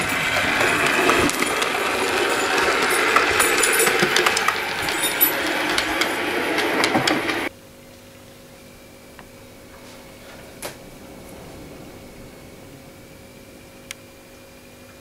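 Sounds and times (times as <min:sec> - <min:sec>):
wheels clicking over rail: 0:00.0 - 0:07.5, 0:09.1 - 0:15.0
faint steady hum: 0:07.4 - 0:15.0.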